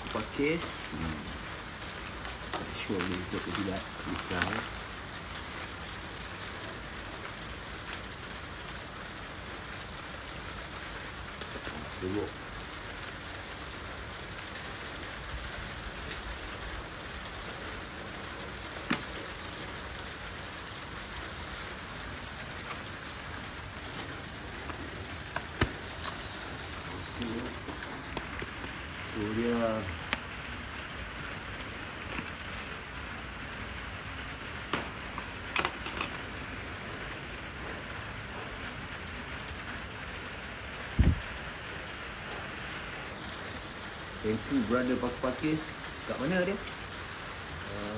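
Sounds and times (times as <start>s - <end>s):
plastic wrapping crinkling: 0.0s - 6.6s, 22.6s - 33.1s
rain-like hiss: 0.0s - 47.9s.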